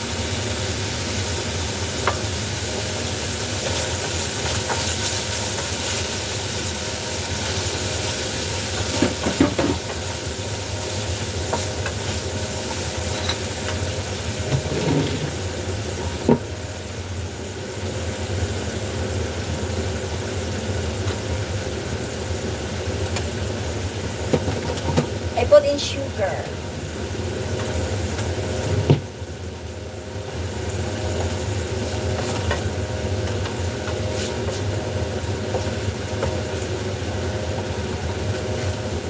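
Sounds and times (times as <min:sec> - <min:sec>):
tomatoes sizzling in a frying pan: 0:00.0 - 0:39.0
wooden spatula scraping a pan: 0:14.5 - 0:15.4.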